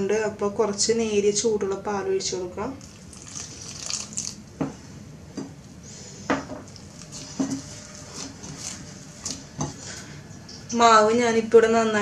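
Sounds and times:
hand squishing dough: 0:06.7 - 0:09.5.

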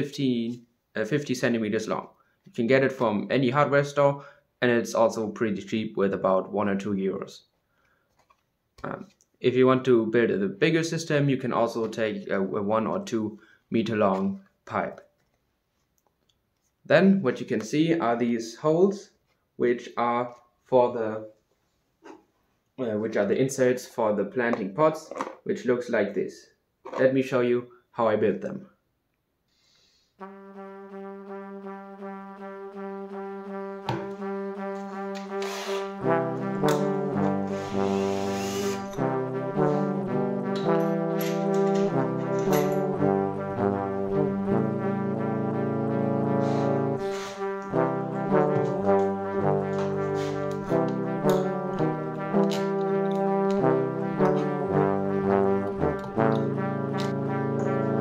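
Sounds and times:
brass instrument low pulses: 0:30.1 - 0:58.0.

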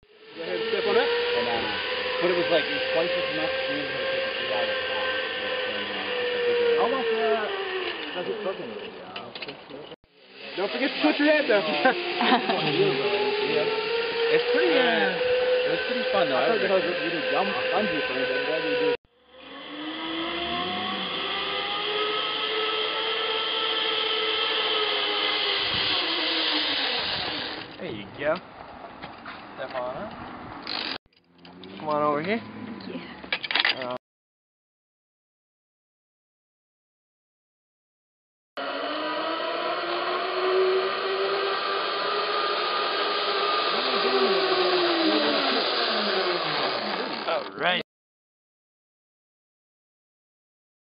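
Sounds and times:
zipline pulleys whirring on cable: 0:00.0 - 0:27.8, 0:30.6 - 0:33.8, 0:38.6 - 0:47.8.

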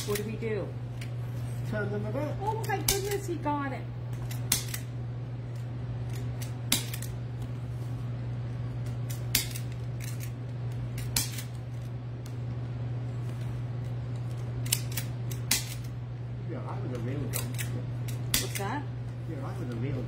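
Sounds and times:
scissors snipping: 0:00.0 - 0:00.3, 0:02.5 - 0:03.2, 0:04.1 - 0:04.9, 0:05.5 - 0:07.2, 0:08.8 - 0:11.6, 0:14.2 - 0:15.9, 0:16.9 - 0:18.8
steady low hum: 0:00.0 - 0:20.0.

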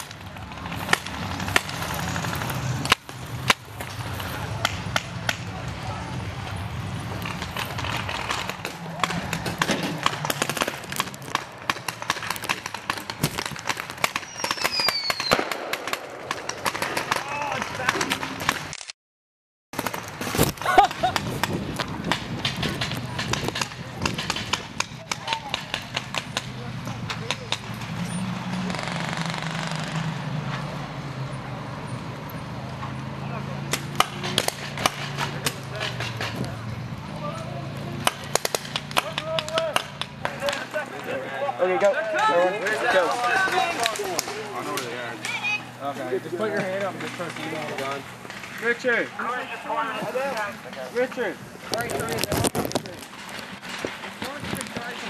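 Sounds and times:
paintball markers popping: 0:07.3 - 0:17.3
paintball markers firing: 0:07.3 - 0:18.7, 0:19.8 - 0:28.0, 0:38.0 - 0:40.8
falling whistle tone: 0:14.2 - 0:15.4.

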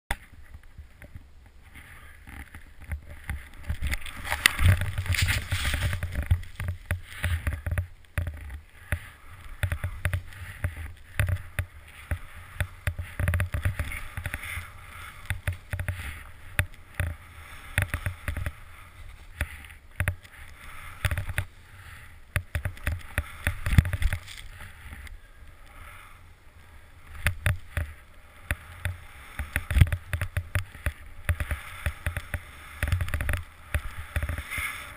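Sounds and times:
wind rumble on microphone: 0:00.2 - 0:21.5.

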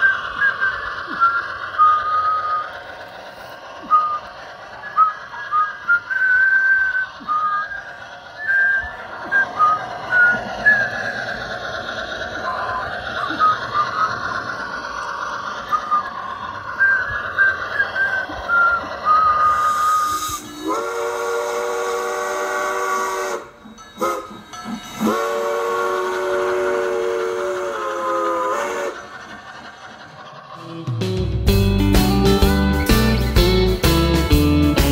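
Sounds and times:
steam locomotive whistle: 0:00.0 - 0:02.8, 0:03.8 - 0:11.2, 0:15.6 - 0:29.2
steady steam hiss: 0:00.0 - 0:30.6.

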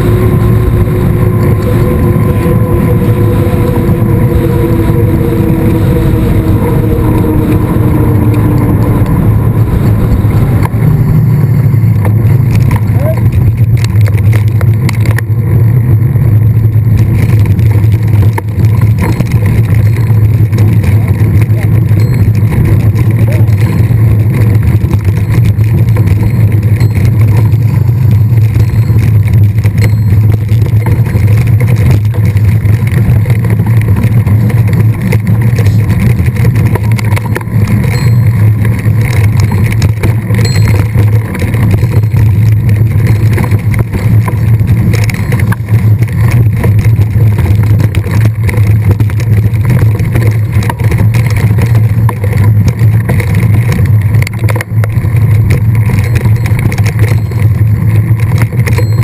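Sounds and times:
bike riding noise: 0:00.0 - 0:59.0
wind buffeting microphone: 0:00.0 - 0:59.0.

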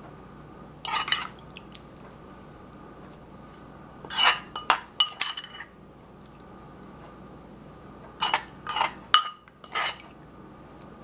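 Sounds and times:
metal spoon clinking on dishes: 0:04.1 - 0:05.7, 0:08.2 - 0:10.0.

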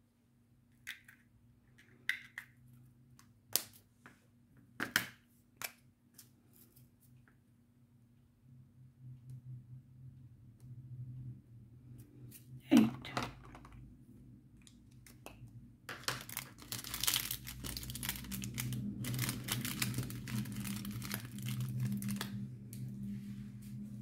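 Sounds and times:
plastic bags crinkling: 0:15.9 - 0:22.4
beads clicking and rattling: 0:16.0 - 0:22.2.

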